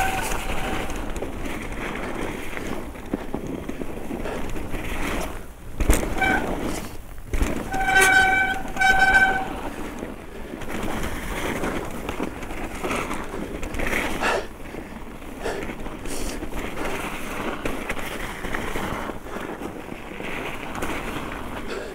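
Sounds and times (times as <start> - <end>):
bike brakes squealing: 0.0 - 1.1, 6.1 - 6.9, 7.6 - 9.8
tyres rumbling on snow: 0.0 - 21.9
bike knocks: 5.7 - 9.6.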